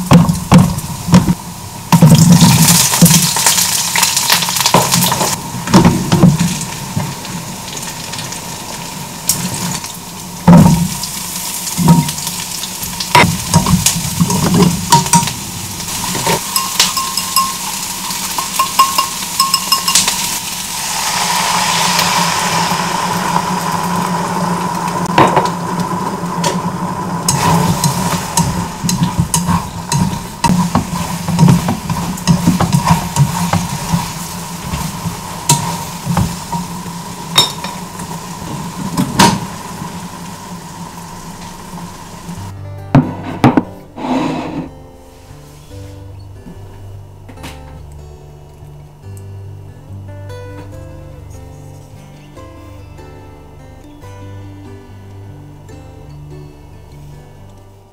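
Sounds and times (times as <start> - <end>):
food sizzling in a frying pan: 0.0 - 42.5
utensils clicking on a pan: 16.0 - 20.4, 27.3 - 36.7.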